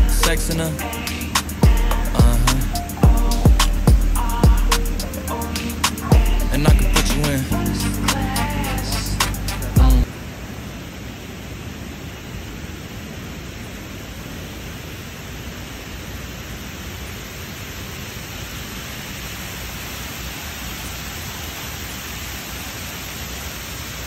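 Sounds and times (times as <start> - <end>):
fountain water rushing: 0.0 - 24.0.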